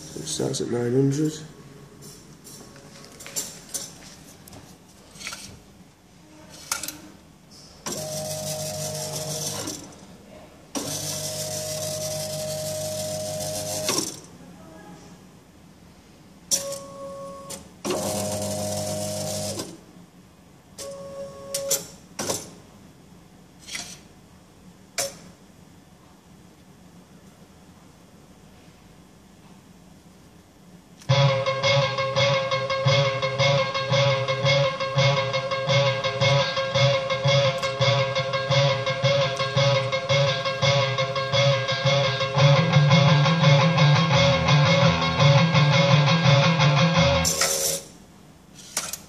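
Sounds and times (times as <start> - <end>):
mechanism clicks and clunks: 6.5 - 7.1, 20.8 - 22.6, 25.0 - 25.4
disc changer motor running: 7.9 - 9.8, 10.8 - 14.2, 31.1 - 43.3.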